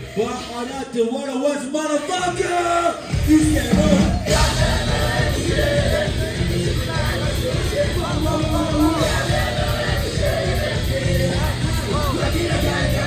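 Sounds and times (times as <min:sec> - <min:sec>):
vocalist singing: 0:00.0 - 0:13.0
live rock band playing: 0:03.0 - 0:13.0.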